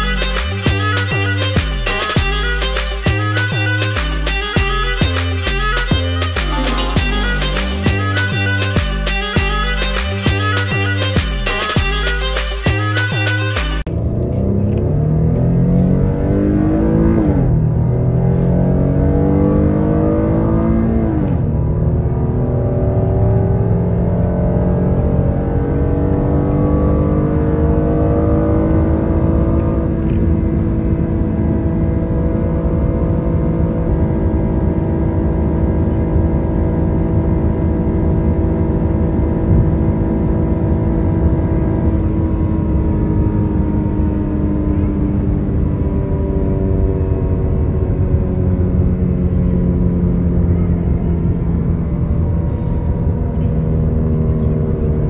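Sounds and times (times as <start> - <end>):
road and wind noise: 0.0 - 55.0
vehicle engine accelerating: 0.0 - 55.0.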